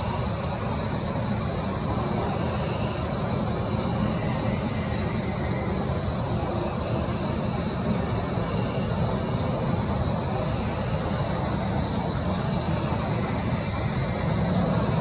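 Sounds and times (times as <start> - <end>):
low rumble of night ambience: 0.0 - 15.0.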